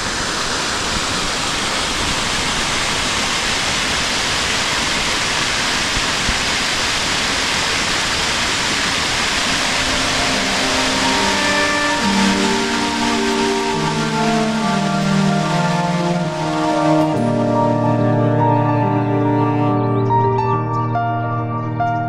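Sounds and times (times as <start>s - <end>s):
creek water rushing: 0.0s - 19.6s
soft music: 9.4s - 22.0s.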